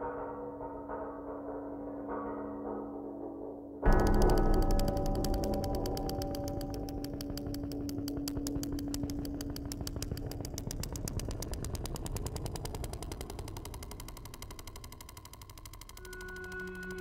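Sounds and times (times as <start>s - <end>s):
low hum: 3.8s - 17.0s
rapid clicking: 3.9s - 17.0s.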